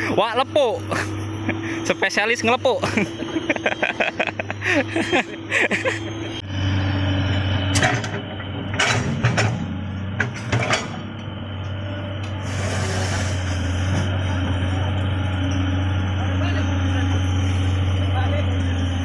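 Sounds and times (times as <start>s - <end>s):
excavator diesel engine running: 0.0s - 19.0s.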